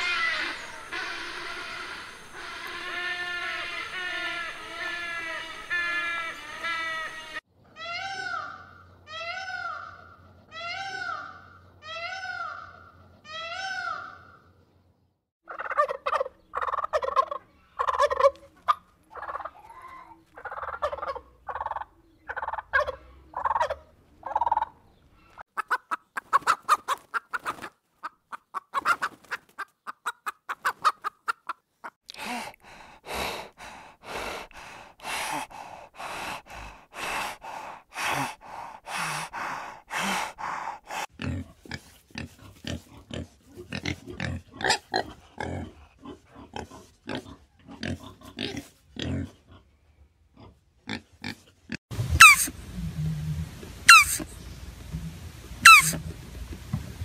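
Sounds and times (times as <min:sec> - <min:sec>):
hyena calling: 0:00.0 - 0:08.5, 0:52.2 - 0:52.6, 0:53.9 - 0:54.3, 0:55.6 - 0:56.0
turkey gobbling and clucking: 0:15.5 - 0:24.8, 0:25.6 - 0:32.0, 0:52.1 - 0:54.4, 0:55.6 - 0:56.1.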